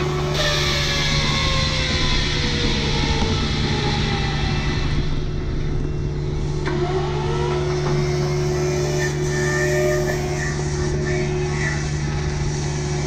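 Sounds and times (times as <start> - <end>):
excavator diesel engine running: 0.0 - 13.0
whine: 0.0 - 13.0.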